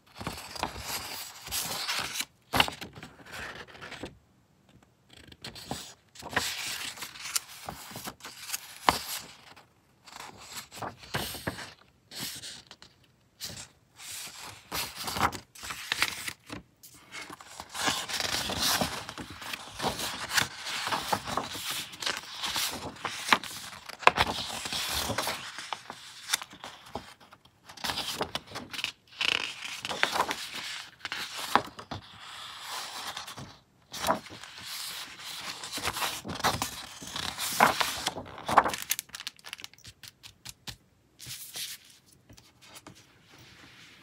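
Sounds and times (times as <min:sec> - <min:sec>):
paper sheets rustling: 0:05.5 - 0:12.6, 0:13.4 - 0:40.4.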